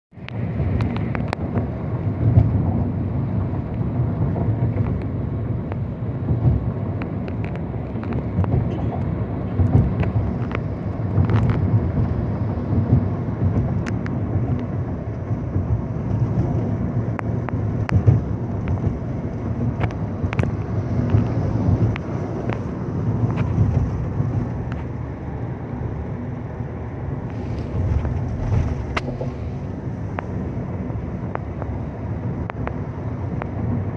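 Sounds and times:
engine and road rumble: 0:00.1 - 0:33.9.

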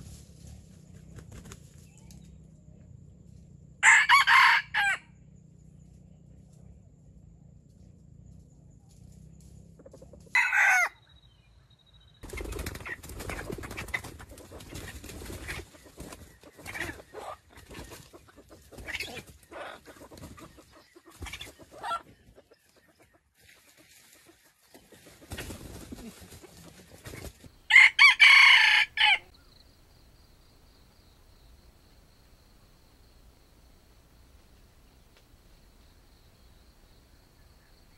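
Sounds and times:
rustling in dry leaves: 0:00.0 - 0:02.1, 0:23.4 - 0:27.6
rooster calling: 0:03.8 - 0:05.1, 0:10.3 - 0:11.0, 0:27.7 - 0:29.3
rooster crowing: 0:03.8 - 0:05.1, 0:10.3 - 0:11.0, 0:27.7 - 0:29.3.

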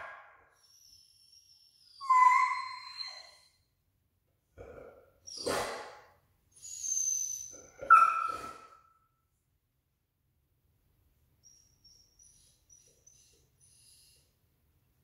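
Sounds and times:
dog whining: 0:00.6 - 0:03.6, 0:06.6 - 0:08.9, 0:11.4 - 0:14.2.

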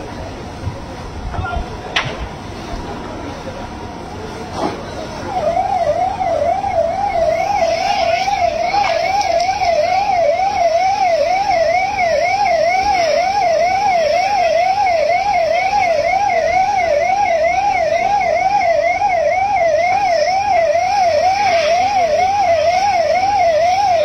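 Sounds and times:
siren wailing in fast warble: 0:05.2 - 0:24.0.

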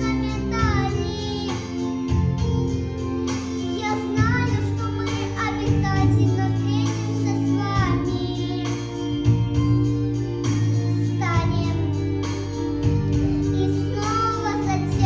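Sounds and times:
boy singing: 0:00.0 - 0:01.9, 0:03.6 - 0:09.2, 0:10.9 - 0:12.0, 0:13.5 - 0:15.0
instrumental backing track: 0:00.0 - 0:15.0.

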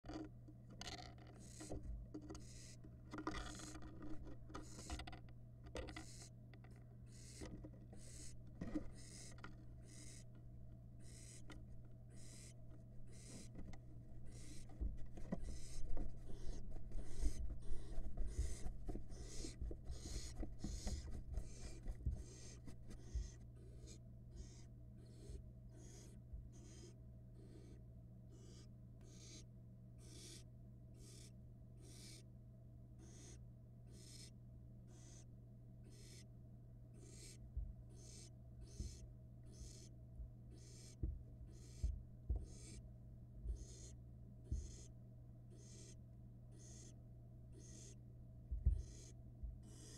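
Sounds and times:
low electrical hum: 0:00.0 - 0:49.9
owl nestlings hissing: 0:02.4 - 0:02.8, 0:04.6 - 0:05.0, 0:07.1 - 0:10.3, 0:11.0 - 0:11.5, 0:12.1 - 0:29.4, 0:30.0 - 0:30.4, 0:31.0 - 0:32.2, 0:33.0 - 0:34.3, 0:34.9 - 0:35.2, 0:35.8 - 0:36.2, 0:37.0 - 0:39.9, 0:40.5 - 0:41.8, 0:42.4 - 0:42.8, 0:43.5 - 0:44.9, 0:45.5 - 0:48.0, 0:48.7 - 0:49.9.

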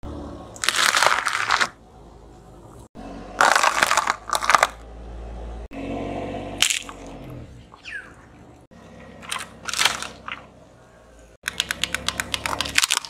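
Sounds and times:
objects crunching under car tyre: 0:00.5 - 0:01.8, 0:03.4 - 0:04.9, 0:06.6 - 0:07.4, 0:09.1 - 0:10.5, 0:11.4 - 0:13.0.

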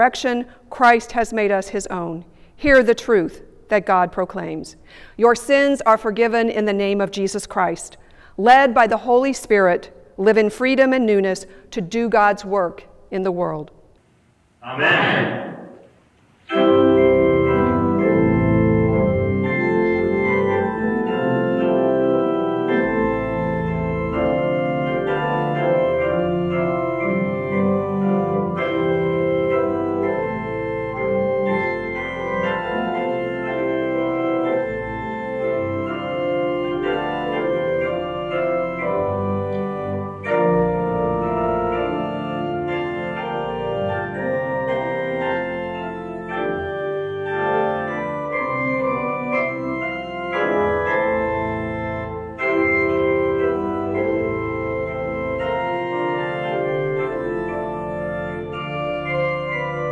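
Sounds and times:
church organ sustained chords: 0:16.5 - 0:59.9.

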